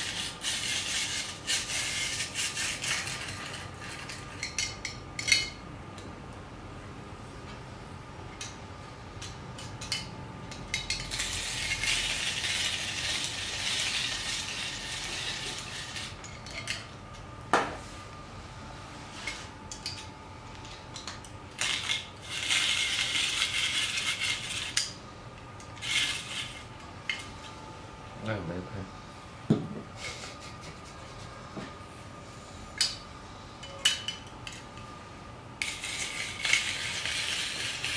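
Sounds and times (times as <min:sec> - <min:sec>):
rotary grater rasping carrot: 0:00.0 - 0:04.1, 0:11.1 - 0:16.2, 0:21.6 - 0:24.8, 0:35.6 - 0:37.9.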